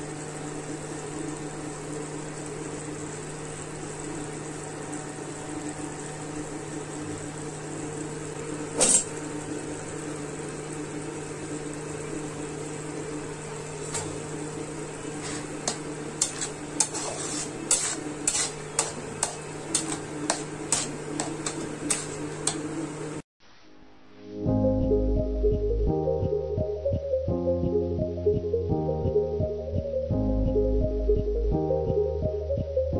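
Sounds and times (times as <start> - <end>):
steady hum: 0.0 - 23.2
curry simmering in a pan: 14.8 - 23.1
spoon stirring and scraping pan: 15.0 - 23.2.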